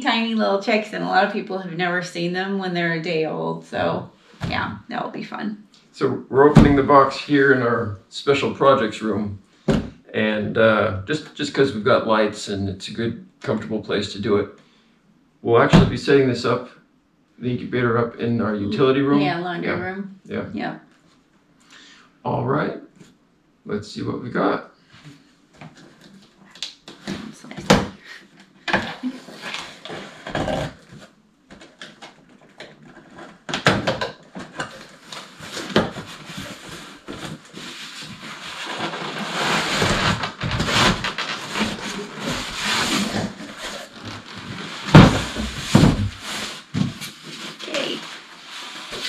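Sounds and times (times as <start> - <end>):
rustling of cardboard and packing: 25.0 - 49.0.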